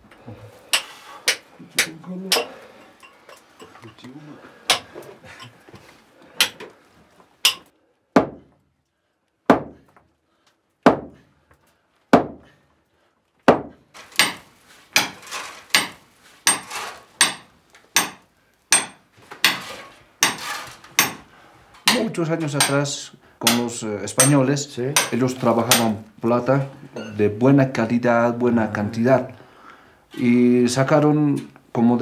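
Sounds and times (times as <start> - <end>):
hammer striking chisel into rock: 7.4 - 8.4, 13.5 - 14.4, 15.0 - 21.2, 23.4 - 24.4, 25.0 - 26.0.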